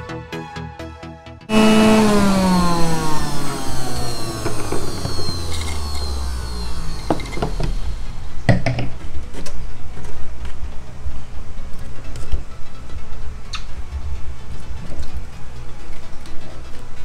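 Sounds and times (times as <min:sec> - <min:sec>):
juicer motor winding down: 0:01.5 - 0:08.5.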